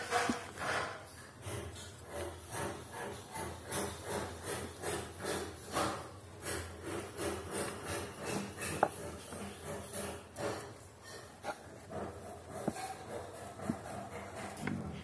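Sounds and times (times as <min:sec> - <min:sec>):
pencil scratching on paper: 0:00.0 - 0:15.0.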